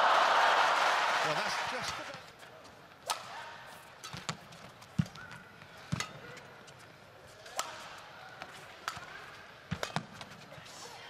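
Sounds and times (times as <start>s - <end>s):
rackets striking shuttlecock: 3.0s - 6.5s, 7.4s - 10.4s
shoes squeaking on court: 3.8s - 7.0s.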